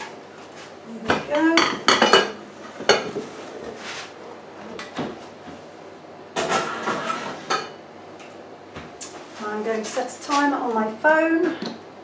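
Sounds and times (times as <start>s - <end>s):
dish scraping onto metal rack: 6.4s - 7.8s.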